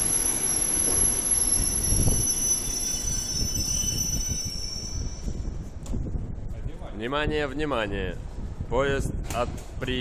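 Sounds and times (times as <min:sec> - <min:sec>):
high-pitched brake squeal: 0:00.0 - 0:05.8
train wheels rumbling: 0:00.0 - 0:06.9.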